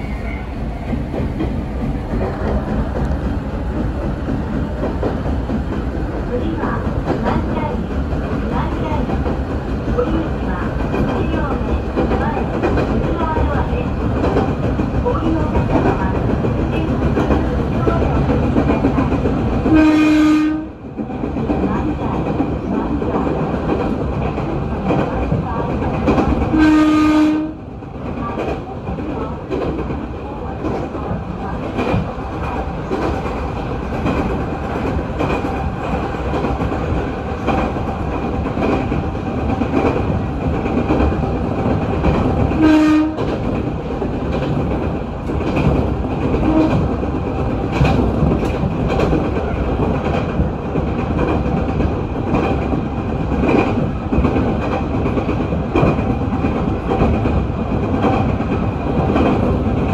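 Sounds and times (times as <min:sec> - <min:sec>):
train wheels clicking over rail joints: 0:00.7 - 0:19.9, 0:20.9 - 0:26.8, 0:27.8 - 0:59.9
train horn blast: 0:19.7 - 0:20.7, 0:26.5 - 0:27.6, 0:42.6 - 0:43.3, 0:46.4 - 0:46.8.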